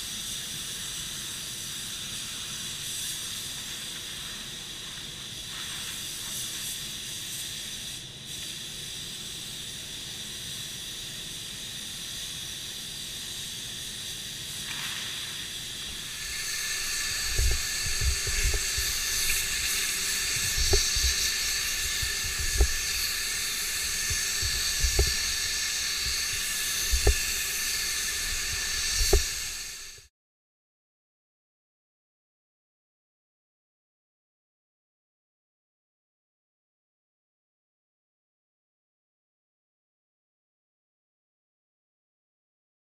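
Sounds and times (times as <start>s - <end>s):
spray gun hissing: 0.0s - 30.1s.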